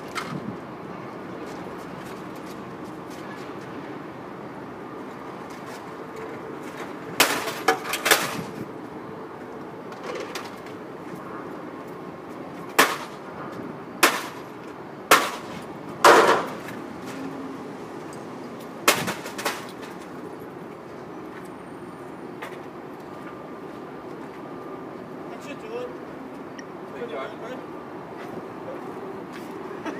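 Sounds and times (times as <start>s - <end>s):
steady background noise: 0.0s - 29.9s
hard objects banging and clacking: 7.2s - 8.5s, 15.1s - 16.8s, 18.8s - 20.0s.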